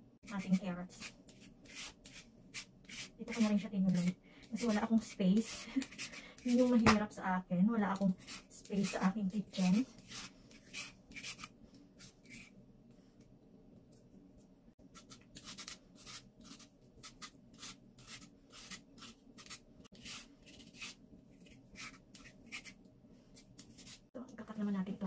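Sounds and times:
carrot scraped with peeler: 8.0 - 12.5, 15.0 - 22.8.

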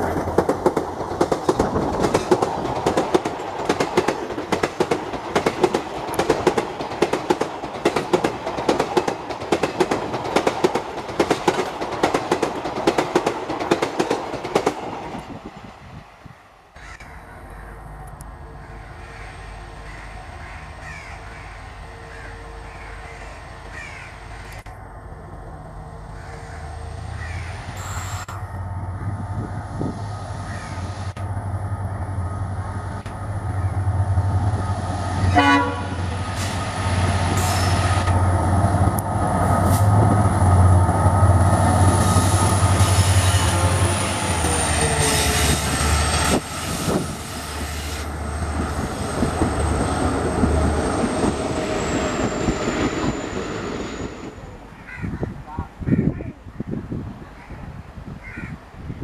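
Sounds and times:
train wheels clattering on rails: 0.0 - 15.4
diesel locomotive engine drone: 0.0 - 55.8
train horn blast: 35.2 - 36.5, 42.9 - 45.8.

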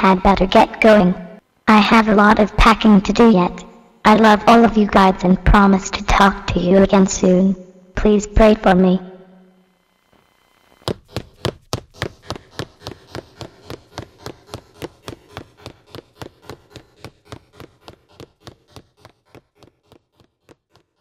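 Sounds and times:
running footsteps: 10.7 - 21.0.

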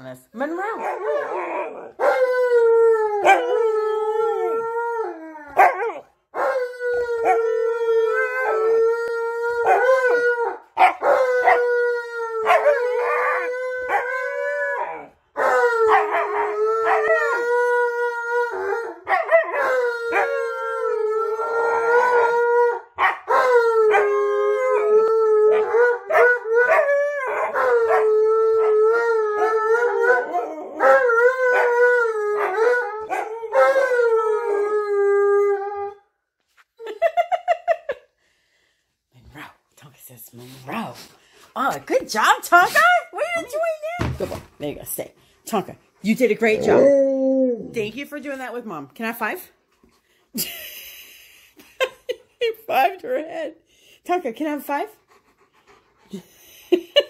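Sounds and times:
dogs howling together: 0.6 - 36.0, 46.2 - 47.9.

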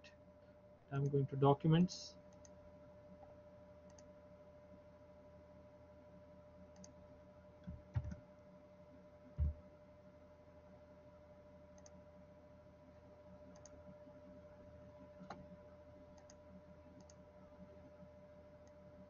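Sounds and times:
faint steady hum: 0.0 - 19.0
computer mouse clicks: 3.9 - 4.1, 6.7 - 7.0, 11.8 - 12.0, 13.5 - 13.8, 16.1 - 16.4, 17.0 - 17.2.

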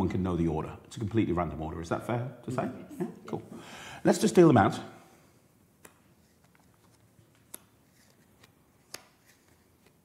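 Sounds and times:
playing cards snapping onto pad: 8.4 - 10.0.

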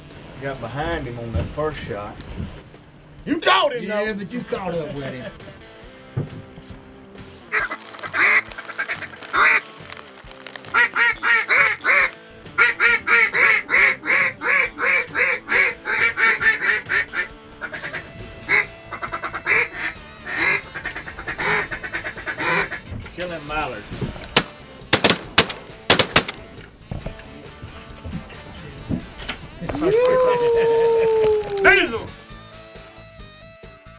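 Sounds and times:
background music: 0.0 - 33.9
duck quacking: 7.5 - 10.0, 10.6 - 23.0.

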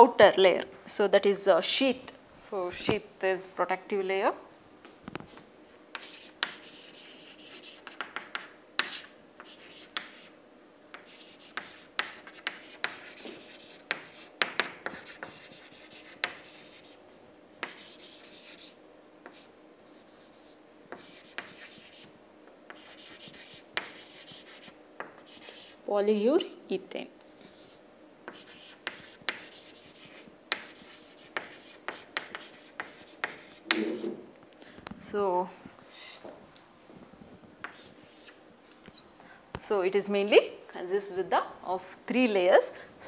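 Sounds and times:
chalk scratching on chalkboard: 5.9 - 10.3, 10.9 - 17.0, 17.6 - 22.1, 22.7 - 25.8, 27.3 - 34.1, 37.6 - 38.4
chalk tapping on chalkboard: 5.9 - 10.3, 10.9 - 16.9, 17.6 - 19.5, 20.1 - 22.1, 22.7 - 25.7, 27.4 - 34.1, 37.6 - 38.4.

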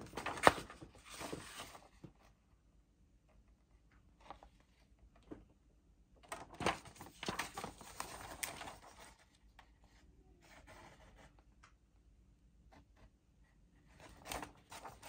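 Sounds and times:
paper pages rustling: 0.0 - 2.2, 6.3 - 9.8, 14.0 - 15.0.

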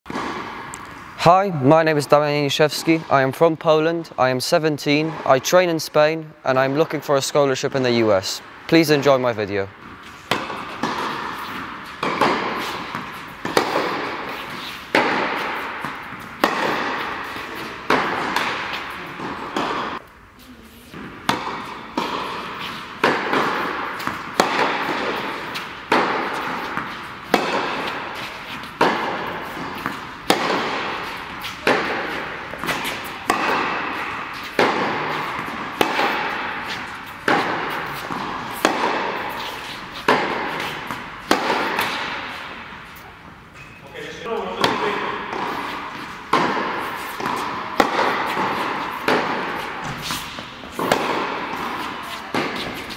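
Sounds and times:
tennis racket hitting ball: 0.1 - 1.1, 9.8 - 20.0, 20.9 - 43.2, 44.3 - 52.9.

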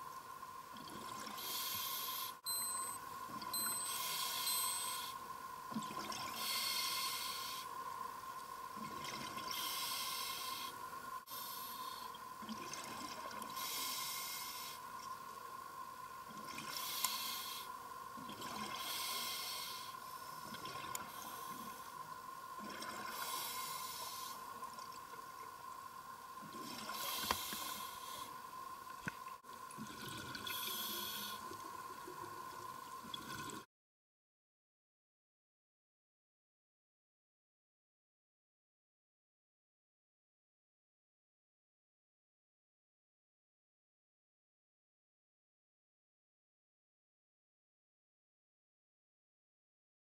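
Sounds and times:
faint steady hum: 0.0 - 33.6
diver inhaling through regulator: 1.4 - 3.0, 3.6 - 5.2, 6.4 - 7.7, 9.5 - 12.1, 16.7 - 17.7, 18.8 - 20.0, 23.1 - 24.4, 26.8 - 28.4, 30.4 - 31.5
exhaled bubbles hissing: 29.7 - 32.4.

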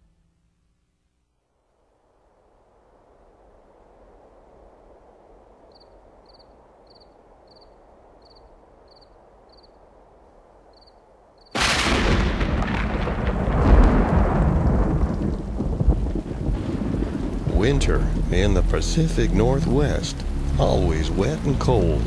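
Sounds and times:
faint hiss: 0.0 - 11.6, 16.8 - 22.0
loud rumbling noise: 13.6 - 22.0.

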